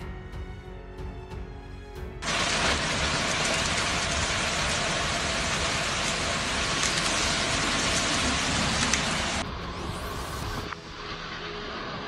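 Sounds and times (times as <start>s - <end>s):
hailstones ticking: 2.2s - 9.4s
heavy hail and rain: 2.2s - 9.4s.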